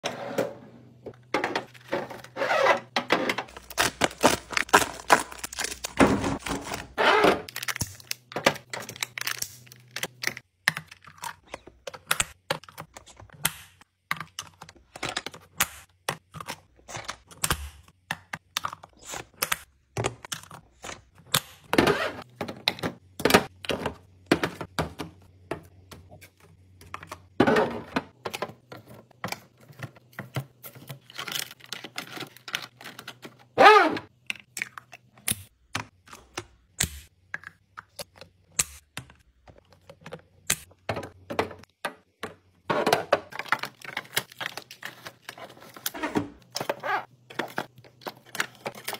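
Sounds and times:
plastic containers clicking and tapping: 22.4 - 27.3.

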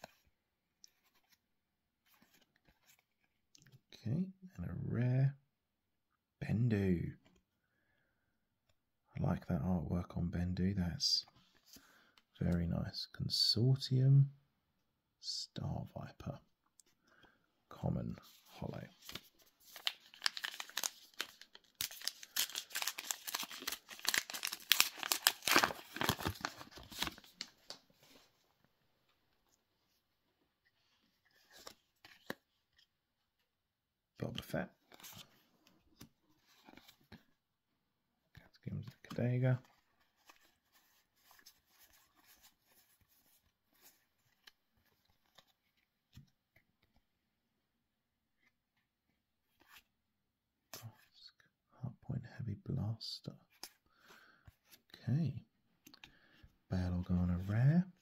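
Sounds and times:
cards and wrappers rustling: 18.1 - 28.4, 30.9 - 32.9, 34.3 - 37.3, 38.8 - 47.0
plastic wrapper tearing and crinkling: 19.6 - 27.8.

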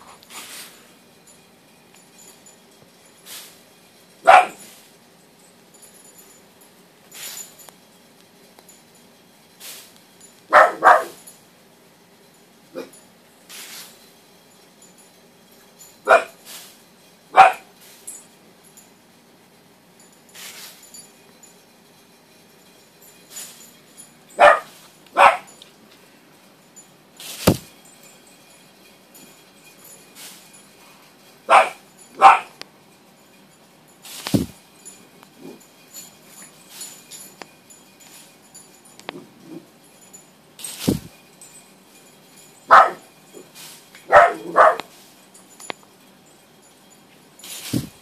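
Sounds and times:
small dog barking: 4.2 - 4.7, 10.5 - 11.2, 16.1 - 16.4, 17.4 - 17.7, 24.4 - 25.5, 31.5 - 32.6, 42.7 - 43.1, 44.1 - 44.9
thump: 27.4 - 27.7, 34.3 - 34.6, 40.8 - 41.1, 47.7 - 48.0.

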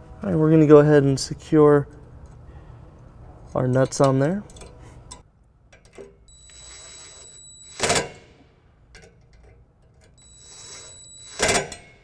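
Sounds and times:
impact driver whining: 6.3 - 8.3, 10.2 - 12.0.

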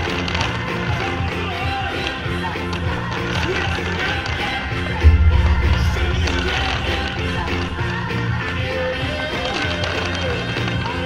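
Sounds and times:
music with strong low beat: 2.4 - 9.8
deep thump: 5.0 - 8.5.

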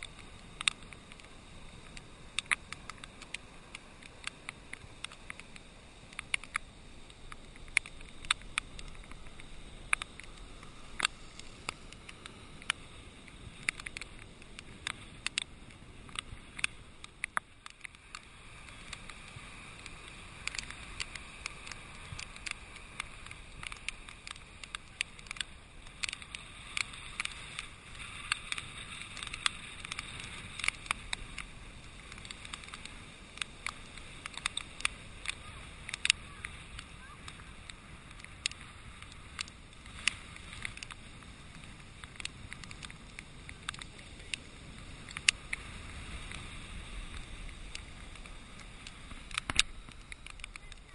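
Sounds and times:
muffled wind: 0.0 - 50.9
rain ticking on camera housing: 0.0 - 50.9
surf: 18.0 - 50.9.

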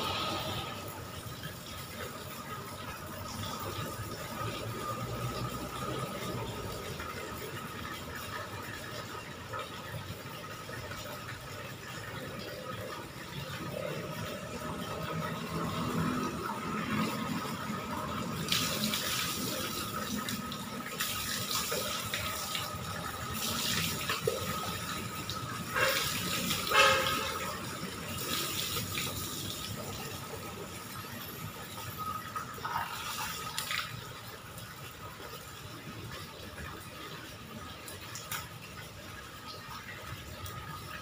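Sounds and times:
water splashing on concrete floor: 13.6 - 41.0.

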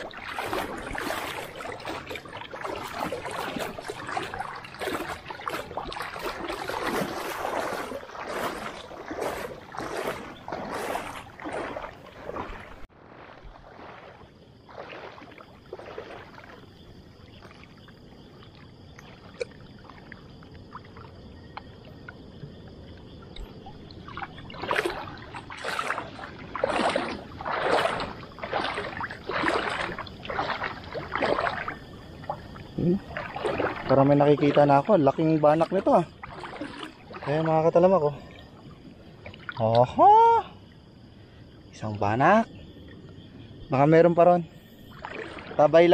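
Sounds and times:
wading through water splashing: 0.0 - 45.9.

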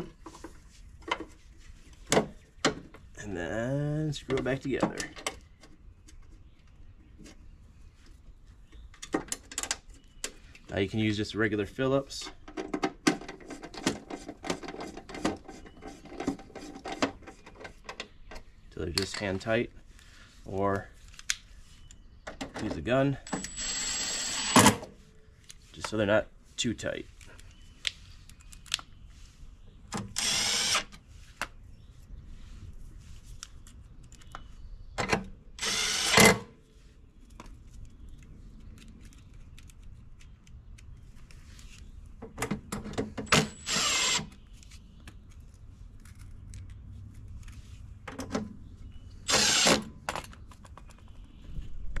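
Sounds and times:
screw gun driving screws into metal: 43.3 - 44.3, 49.3 - 49.9.

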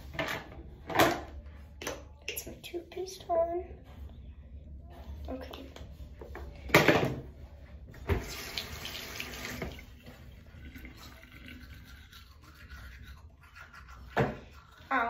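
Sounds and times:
tap water running: 8.1 - 12.8
toothbrush scrubbing: 10.0 - 15.0.

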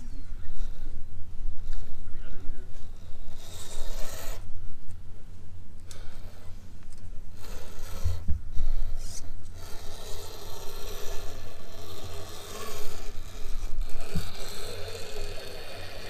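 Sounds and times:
tyres working through dirt: 0.0 - 4.6, 5.8 - 16.0
electric motor of toy truck: 2.8 - 4.5, 5.9 - 6.7, 7.3 - 16.0.

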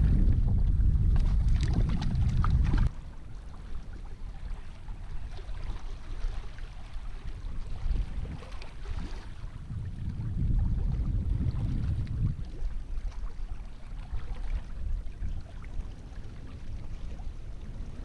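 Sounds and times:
waves lapping against rocks: 0.0 - 18.0
wind rumbling on microphone: 0.0 - 18.0.

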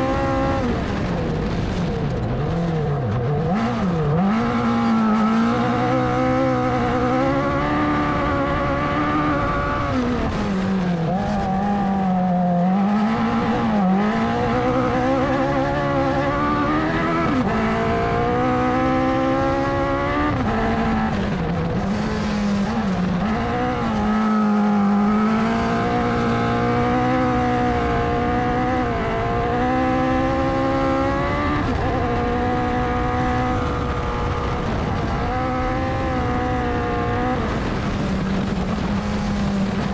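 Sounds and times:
gravel noise: 0.0 - 18.2, 20.0 - 26.1, 37.2 - 39.9
buggy engine revving: 0.0 - 39.9
wind noise: 0.0 - 39.9.

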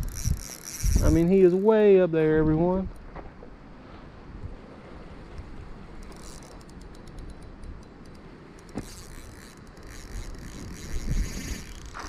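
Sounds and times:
fishing reel clicking and whirring: 0.0 - 1.8, 6.0 - 12.0.

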